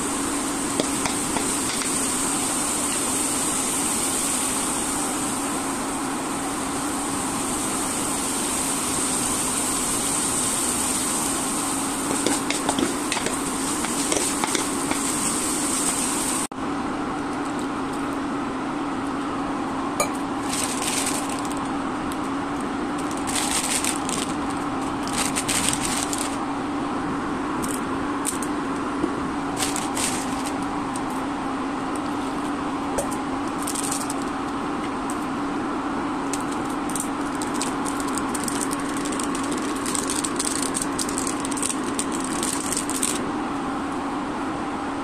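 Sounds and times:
hot pan hissing and crackling: 0:00.0 - 0:16.5, 0:36.4 - 0:43.2
cooktop cooling fan humming: 0:00.0 - 0:45.0
sachet tearing and crinkling: 0:20.4 - 0:21.7, 0:23.0 - 0:26.4, 0:29.6 - 0:30.6, 0:33.6 - 0:34.3, 0:36.4 - 0:43.2.

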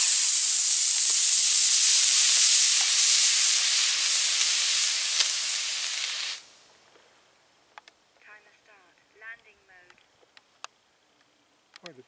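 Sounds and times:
rocket motor hissing: 0:00.0 - 0:06.6.

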